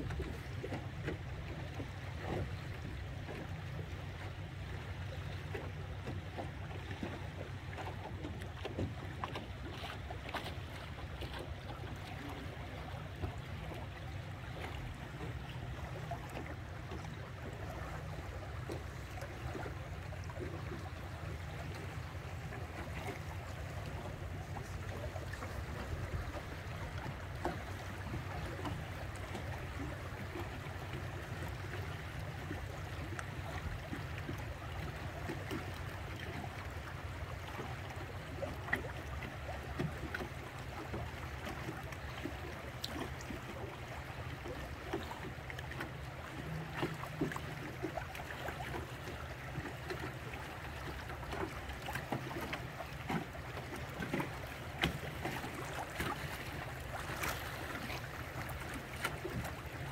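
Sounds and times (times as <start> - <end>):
boat engine drone: 0.0 - 59.9
water splashing against hull: 0.0 - 59.9.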